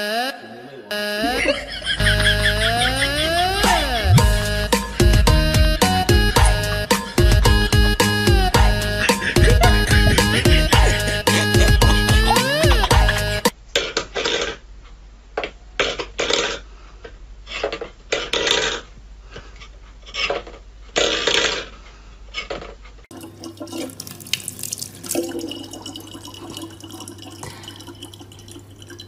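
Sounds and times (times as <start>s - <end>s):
tap water running into plastic bottle: 23.1s - 29.0s.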